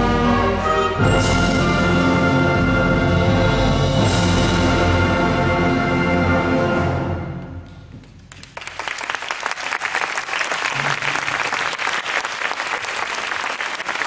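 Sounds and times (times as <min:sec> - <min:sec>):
audience applauding: 0:08.0 - 0:14.0.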